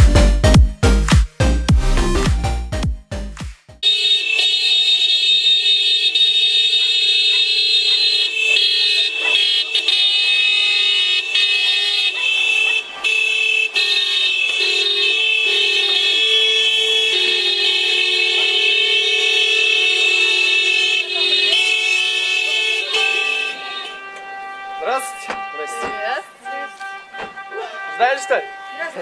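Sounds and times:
car horns honking: 3.8s - 29.0s.

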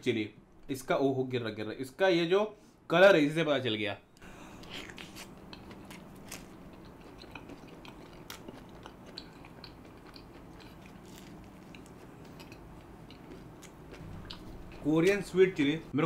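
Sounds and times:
faint low hum: 0.0s - 16.0s
close chewing mouth clicks: 4.8s - 14.8s.

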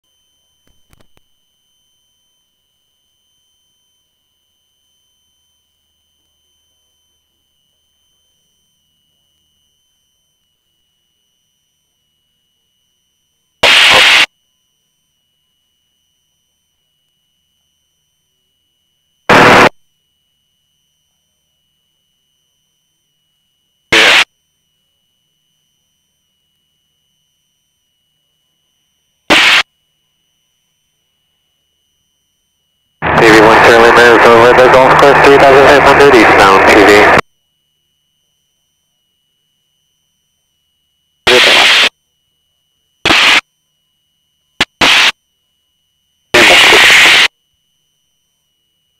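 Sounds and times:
faint steady high tone: 0.0s - 13.6s, 14.3s - 46.3s, 47.3s - 48.9s
radio static bursts: 13.6s - 14.3s, 19.3s - 19.7s, 23.9s - 24.3s, 29.3s - 29.6s, 33.0s - 37.2s, 41.3s - 41.9s, 43.1s - 43.4s, 44.6s - 45.2s, 46.4s - 47.3s.

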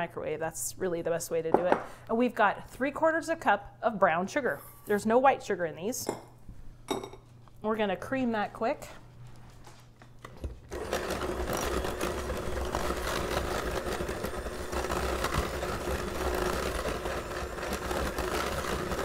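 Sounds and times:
electric hand mixer running: 10.7s - 19.0s.

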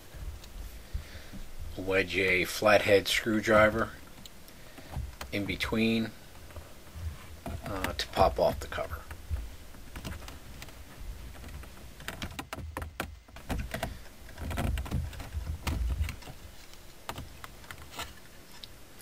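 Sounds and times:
low handling bumps: 0.0s - 17.6s
plastic clips clicking and scraping: 6.4s - 18.8s.

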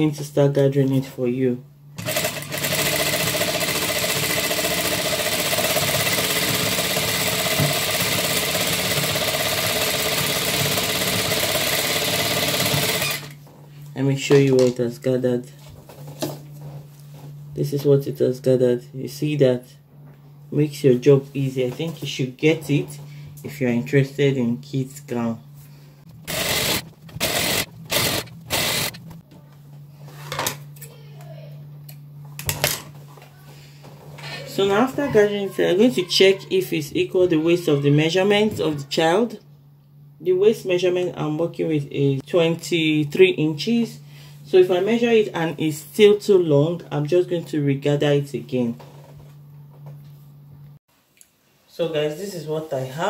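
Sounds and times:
sewing machine running: 2.0s - 13.4s, 26.1s - 29.2s
steady low hum: 13.0s - 35.1s.

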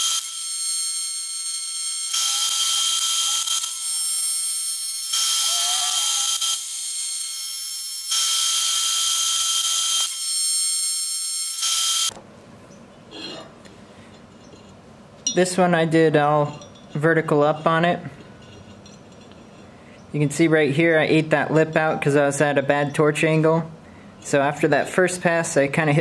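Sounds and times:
welding arc buzzing: 0.0s - 12.2s.

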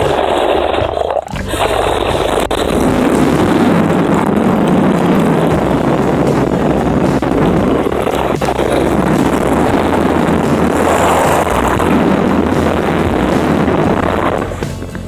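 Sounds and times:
bathtub water rushing underwater: 0.0s - 15.0s.

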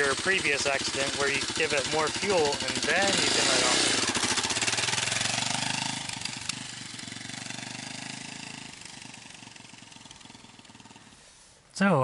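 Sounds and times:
motorcycle riding away: 0.0s - 11.2s.

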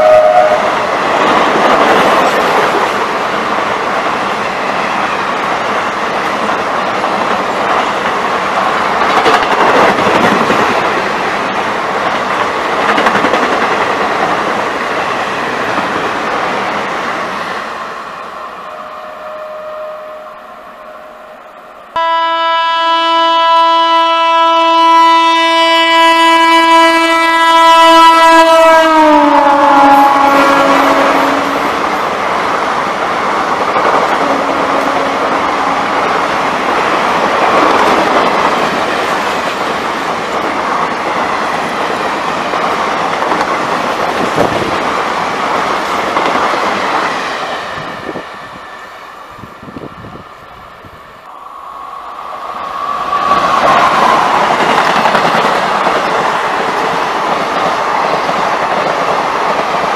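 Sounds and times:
train horn: 0.0s - 0.9s, 18.4s - 31.8s, 34.2s - 35.9s
train coaches rushing past: 0.0s - 22.0s, 27.2s - 59.9s.

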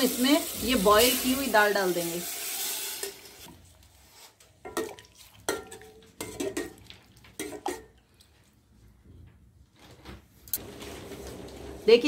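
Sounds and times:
steel ladle clinking on pot: 4.7s - 7.9s.

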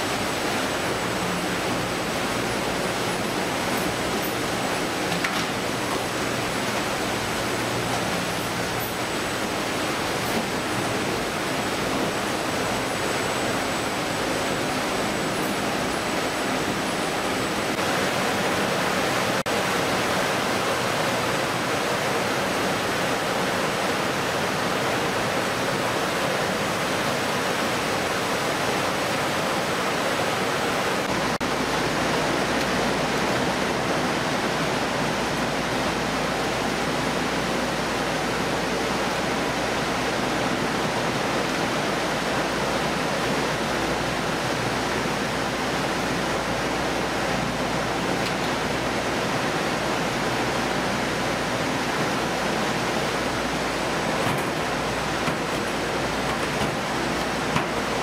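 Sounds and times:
running water: 0.0s - 58.0s.

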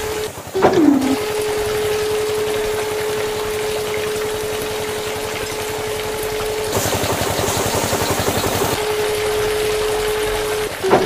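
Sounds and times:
water pump whining: 0.0s - 11.0s
water spraying hiss: 0.0s - 11.0s
rapid pulsing rattle: 5.2s - 8.8s.

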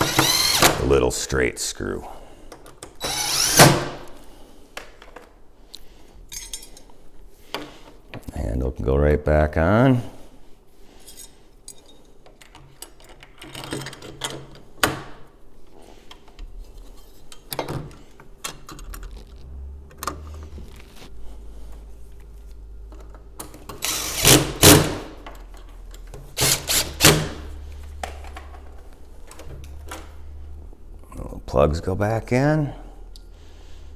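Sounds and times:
metal parts and tool clicking: 6.3s - 6.9s, 11.0s - 14.6s.

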